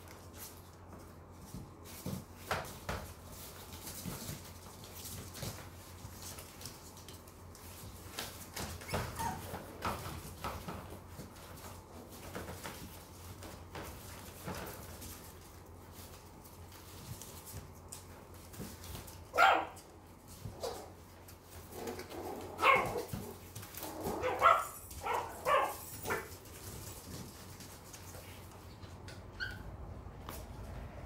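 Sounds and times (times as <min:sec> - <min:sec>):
puppies scuffling on hard floor: 0:00.0 - 0:31.0
puppy whining: 0:08.6 - 0:10.0, 0:20.4 - 0:26.3, 0:29.1 - 0:29.8.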